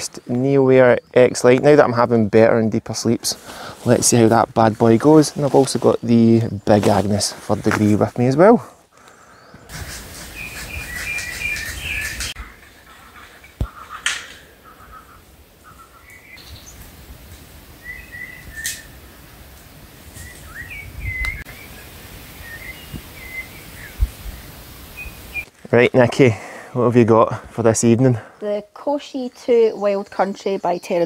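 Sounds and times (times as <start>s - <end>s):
songbirds chirping: 0.0s - 31.0s
low background rustle: 2.8s - 10.8s.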